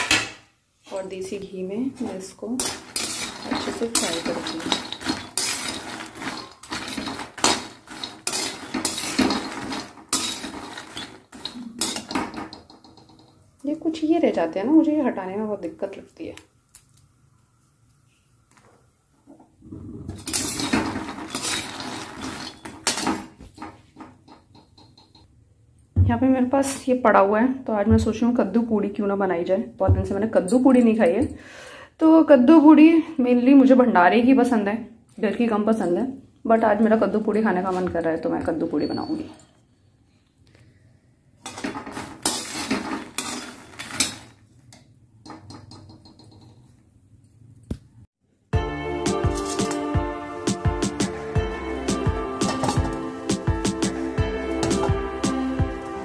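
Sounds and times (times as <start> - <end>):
metal spoon stirring nuts in pan: 2.0 - 13.4, 20.2 - 23.7, 41.4 - 44.4, 49.1 - 50.0, 50.9 - 56.0
nuts sizzling in ghee: 2.6 - 12.5, 20.2 - 23.1.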